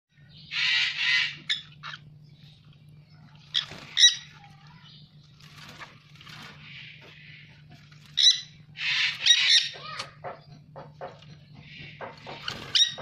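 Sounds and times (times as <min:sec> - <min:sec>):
low steady hum: 0:00.1 - 0:13.0
parrot screeching and squawking: 0:00.5 - 0:02.1, 0:03.5 - 0:04.5, 0:08.0 - 0:10.2, 0:12.3 - 0:13.0.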